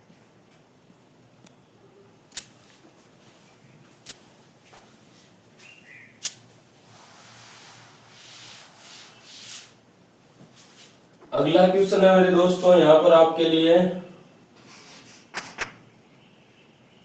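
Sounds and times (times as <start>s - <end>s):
duster rubbing chalkboard: 6.8s - 9.8s.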